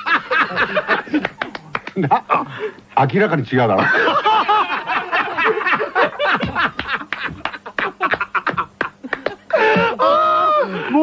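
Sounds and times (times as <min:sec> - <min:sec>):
people laughing hard: 0:00.0 - 0:02.8, 0:03.7 - 0:11.0.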